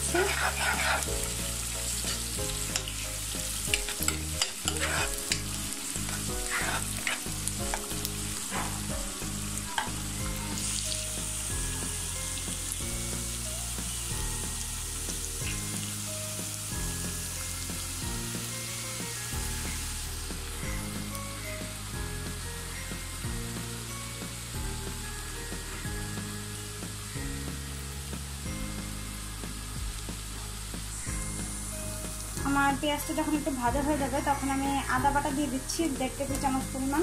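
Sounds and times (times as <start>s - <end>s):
spatula scraping a pot: 0.0s - 2.9s, 3.7s - 9.0s
onions sizzling in hot oil: 0.0s - 37.0s.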